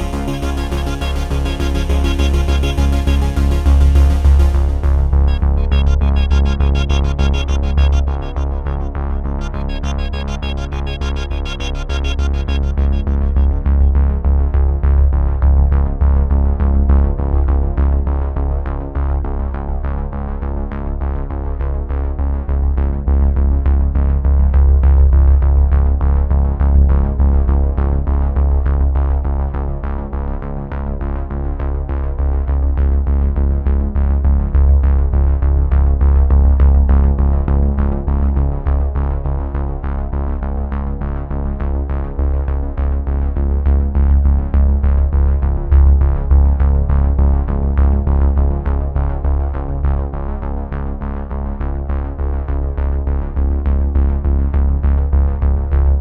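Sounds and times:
synthesizer music with heavy bass: 0:00.0 - 0:14.6.

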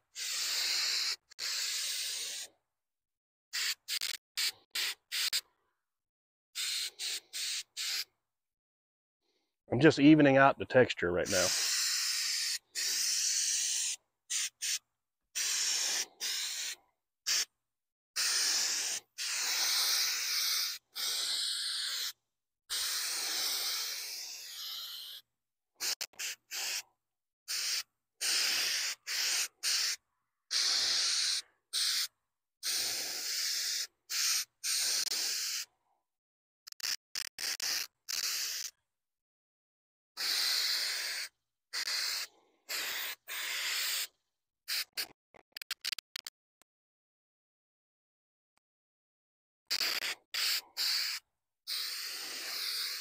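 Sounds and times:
aerosol spray can hissing: 0:00.0 - 0:02.5, 0:03.5 - 0:05.5, 0:06.6 - 0:08.1, 0:11.3 - 0:14.8, 0:15.4 - 0:17.5, 0:18.2 - 0:25.2, 0:25.8 - 0:26.8, 0:27.5 - 0:35.7, 0:36.7 - 0:38.8, 0:40.2 - 0:44.1, 0:44.7 - 0:46.3, 0:49.7 - 0:53.0.

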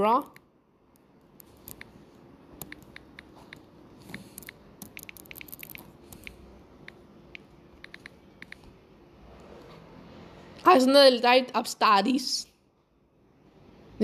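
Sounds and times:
fingertips tapping touchscreen: 0:00.3 - 0:08.8.

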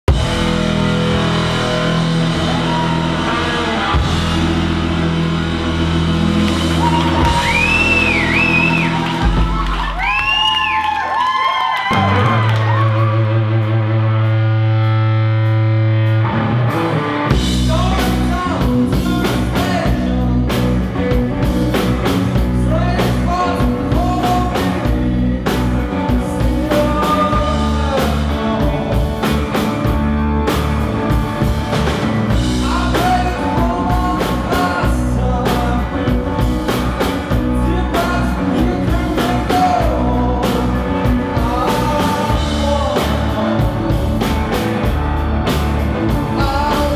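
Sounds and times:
drums: 0:00.0 - 0:46.9
electric guitar: 0:00.1 - 0:46.9
man singing: 0:17.3 - 0:29.9, 0:32.3 - 0:44.9, 0:46.0 - 0:46.9.

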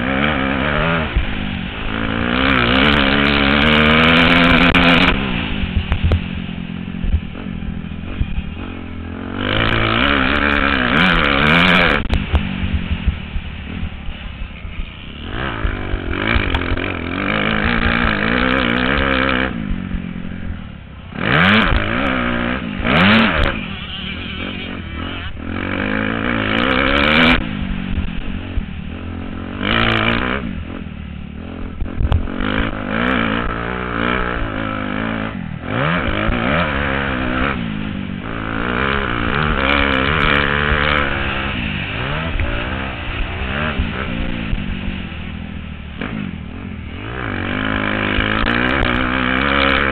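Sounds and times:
motorbike engine revving: 0:00.0 - 0:49.9.

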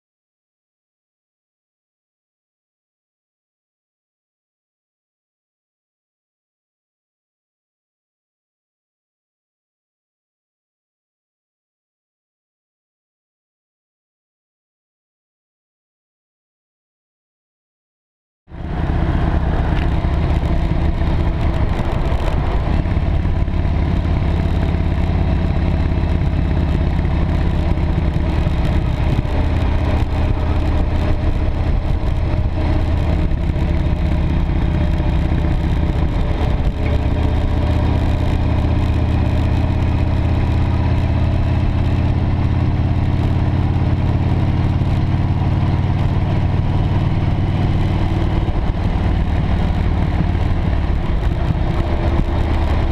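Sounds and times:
motorcycle engine running: 0:18.5 - 0:52.9
wind and road noise: 0:18.5 - 0:52.9.

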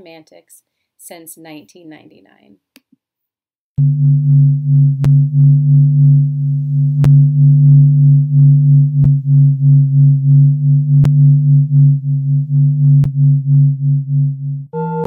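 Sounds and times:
low hum with higher tone: 0:03.8 - 0:15.0.

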